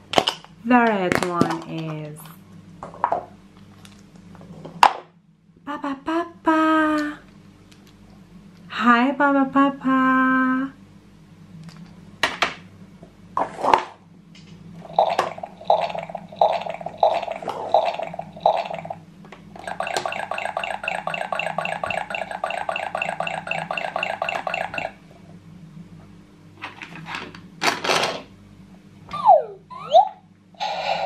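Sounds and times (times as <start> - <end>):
pulsing electronic tune: 14.9 - 19.0, 19.6 - 25.0
toy electronic pitched bursts: 19.6 - 25.0.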